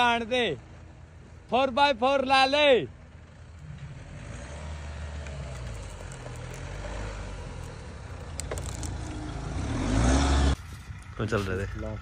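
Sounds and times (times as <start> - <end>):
vehicle engine at low revs: 2.9 - 12.0.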